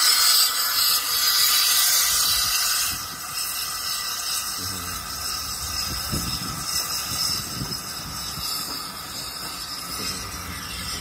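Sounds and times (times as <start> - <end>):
steam hissing: 0.0 - 11.0
train carriages rumbling: 4.6 - 11.0.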